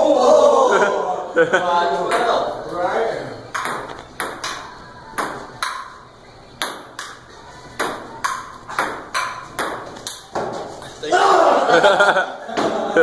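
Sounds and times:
ping pong ball bouncing on table: 2.1 - 2.4, 3.5 - 6.0, 6.6 - 7.2, 7.8 - 10.6
ping pong ball clicking off paddles: 3.5 - 6.0, 6.6 - 7.2, 7.8 - 10.7.

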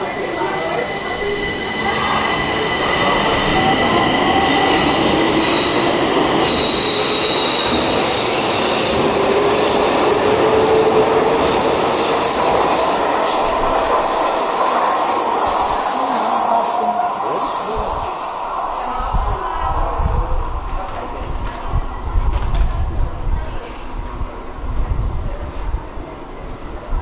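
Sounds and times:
high wheel squeal: 0.0 - 10.0, 11.3 - 21.1
train wheels rumbling on rail: 0.0 - 27.0.

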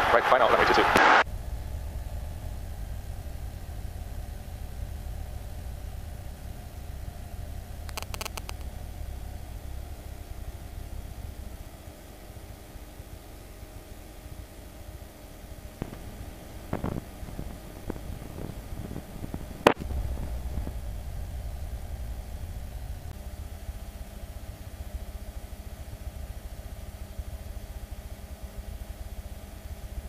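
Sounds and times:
aircraft engine rumble: 0.0 - 30.0
steady low hum: 0.0 - 30.0.

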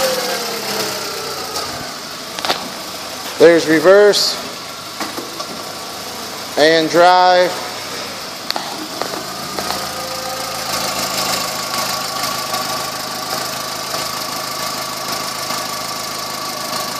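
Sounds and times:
car engine idling: 0.0 - 16.9
thin steady whine: 5.6 - 13.3.

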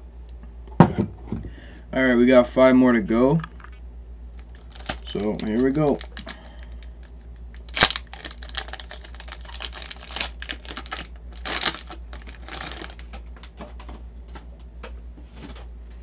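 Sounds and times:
foil wrapper crinkling and tearing: 4.4 - 13.6.

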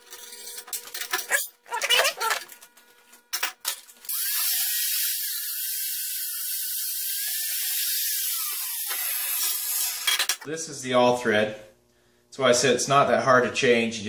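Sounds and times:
grinder cutting steel whine: 4.0 - 10.4.

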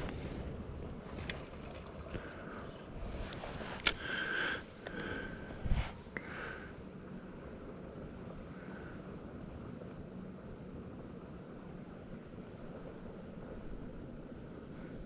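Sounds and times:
fishing reel whirring: 0.8 - 5.6
handling clicks: 3.3 - 4.1.

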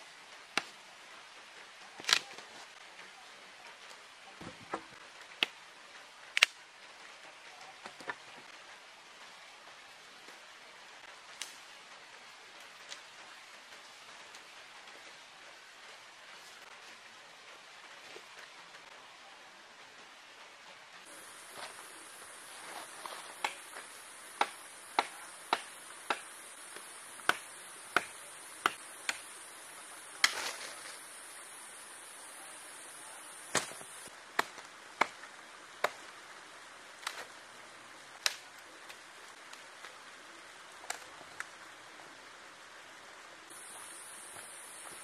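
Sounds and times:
blade chopping wood: 22.7 - 29.2, 33.5 - 35.2.

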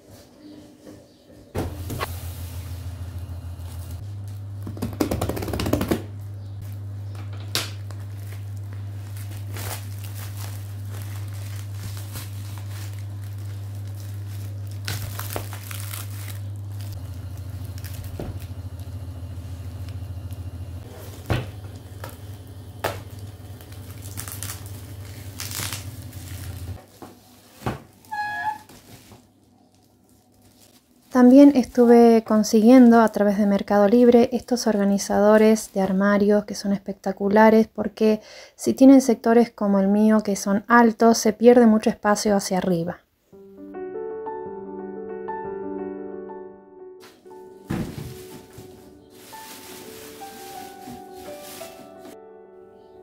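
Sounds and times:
low hum: 1.5 - 4.7, 6.0 - 26.8
plastic wrapping crinkling: 7.7 - 32.0, 47.0 - 52.2.

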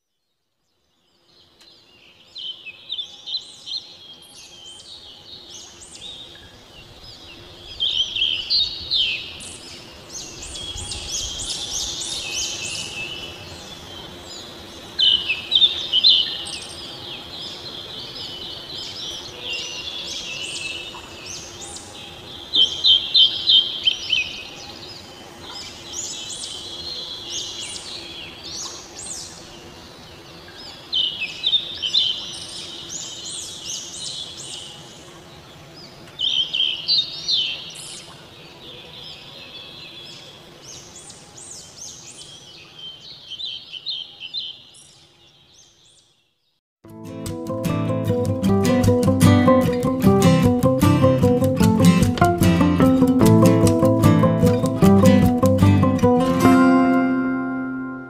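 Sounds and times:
small birds chirping: 1.0 - 46.6.

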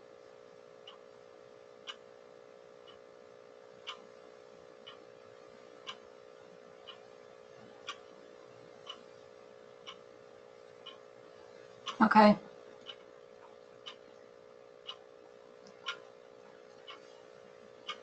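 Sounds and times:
clock ticking: 0.8 - 1.2, 1.8 - 2.1, 2.8 - 3.1, 3.8 - 4.2, 4.8 - 6.2, 6.8 - 7.1, 7.8 - 8.2, 8.8 - 11.2, 11.8 - 18.0.

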